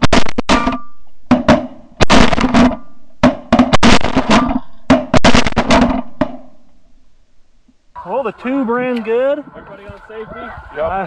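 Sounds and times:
shotgun blasts: 0.0 - 6.6.

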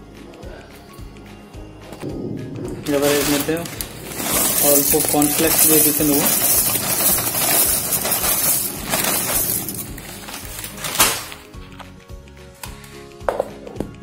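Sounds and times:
background music: 0.0 - 14.0
cornflakes pouring into metal jar: 2.9 - 10.9.

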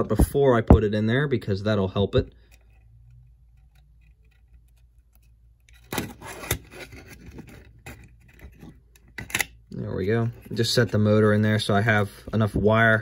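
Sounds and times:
small parts clicking: 2.4 - 6.0
rubbing and scraping of parts: 2.4 - 12.4.

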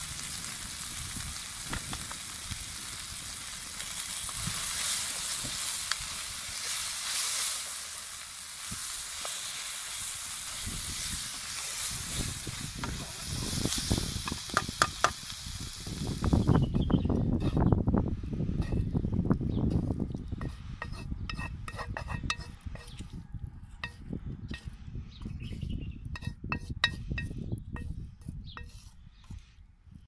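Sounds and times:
meat sizzling in a pan: 0.0 - 16.6.

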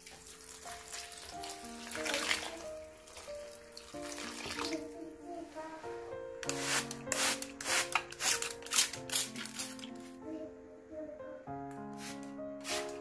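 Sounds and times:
background music: 0.0 - 13.0
rubbing strokes: 12.0 - 13.0.

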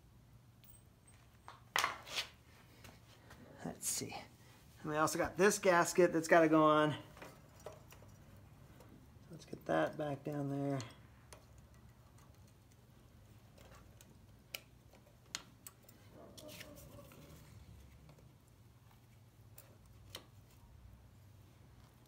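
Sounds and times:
faint clicks and taps of parts: 7.2 - 16.1.

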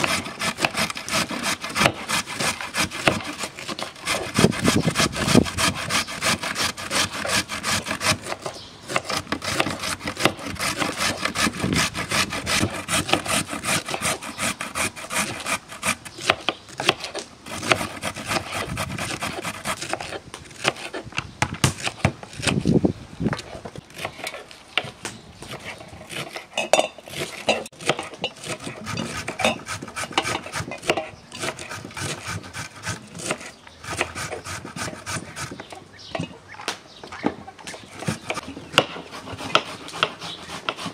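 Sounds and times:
grating on metal grater: 0.0 - 8.4.

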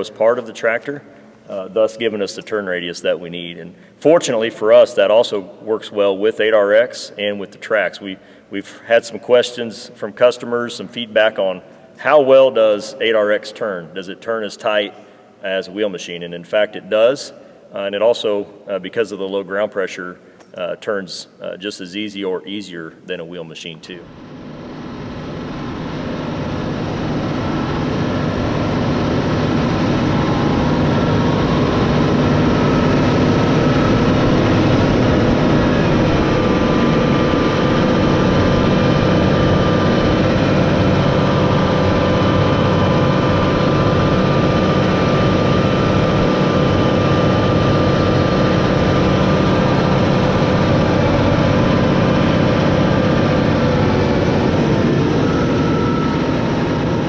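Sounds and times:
tractor engine droning: 0.0 - 7.0, 23.9 - 57.0.

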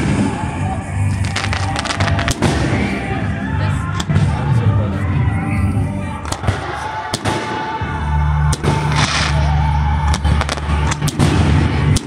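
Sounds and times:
fireworks bursting with bangs: 0.0 - 4.8, 6.1 - 12.0
fireworks crackling: 0.0 - 5.0, 6.1 - 12.0.

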